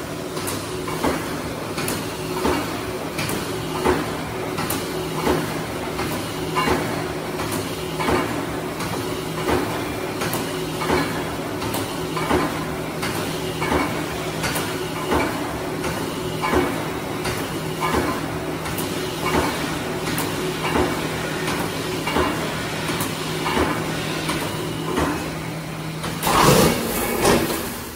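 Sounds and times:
welding machine electrical hum: 0:00.0 - 0:27.9
machine clanking: 0:26.0 - 0:27.9.

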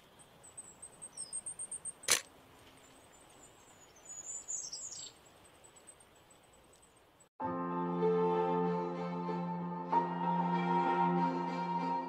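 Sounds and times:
sharp click: 0:02.0 - 0:02.3.

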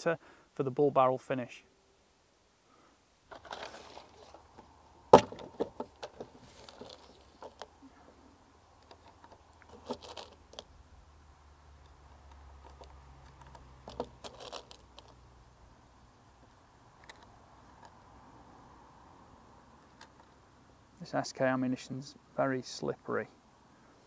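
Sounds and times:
brief rustles: 0:03.3 - 0:04.7, 0:05.3 - 0:08.2.

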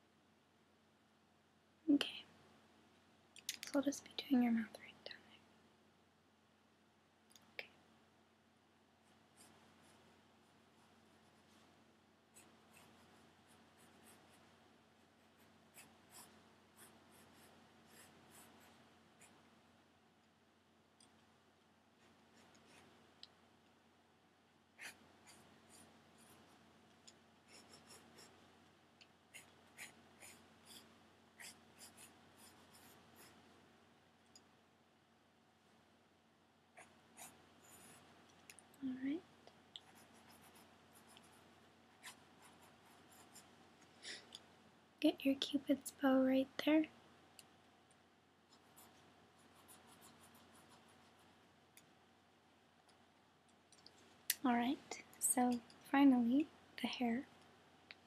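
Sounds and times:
pencil scratching on paper: 0:12.3 - 0:19.4, 0:24.8 - 0:26.6, 0:27.4 - 0:28.4, 0:29.3 - 0:33.4, 0:36.8 - 0:38.1, 0:39.8 - 0:43.5, 0:48.5 - 0:51.3.

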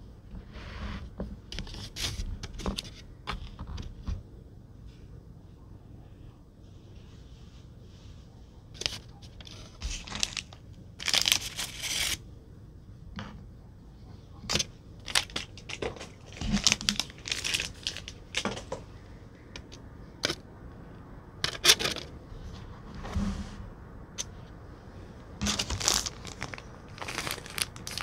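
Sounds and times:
plastic packaging crinkling: 0:08.8 - 0:12.2, 0:15.0 - 0:18.8, 0:25.4 - 0:28.0.

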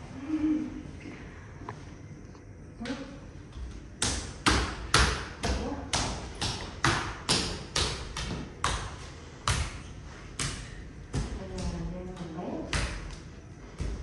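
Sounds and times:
hard-soled footsteps: 0:05.6 - 0:14.0.

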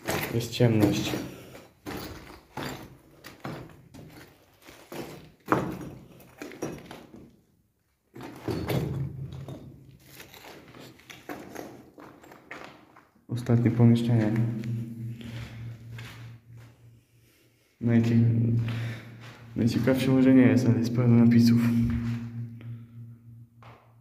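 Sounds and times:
footsteps on concrete floor: 0:00.0 - 0:07.3, 0:13.7 - 0:17.0, 0:18.4 - 0:20.2, 0:21.6 - 0:22.8.

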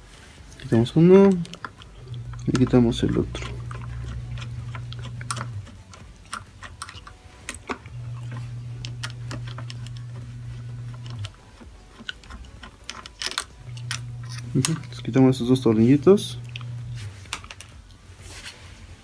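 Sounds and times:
low steady hum: 0:00.0 - 0:19.0
screwdriver clicking on screws: 0:10.9 - 0:15.0.

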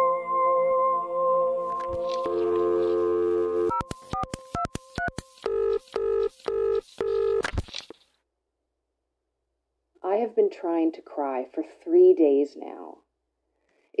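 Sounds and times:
telephone dial tone: 0:01.7 - 0:07.4
keypad dialing tones: 0:01.8 - 0:07.4
telephone beeps: 0:01.8 - 0:07.4.

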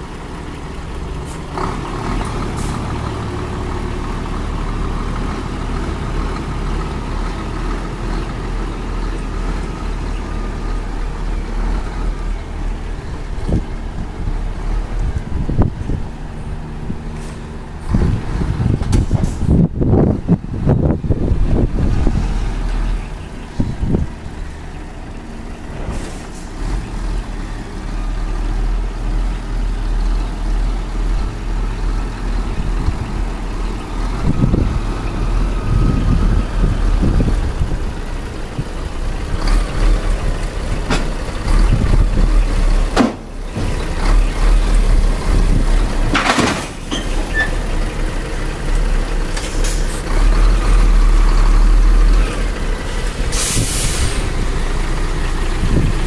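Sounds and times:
diesel truck engine at low revs: 0:00.0 - 0:56.0
air brake hisses: 0:53.3 - 0:54.4.

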